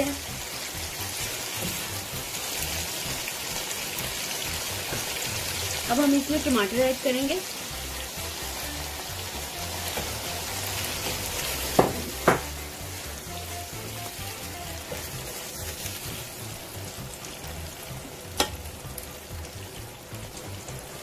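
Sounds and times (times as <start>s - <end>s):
chicken sizzling in a pot: 0.0s - 21.0s
spatula knocking on pot: 11.7s - 12.6s.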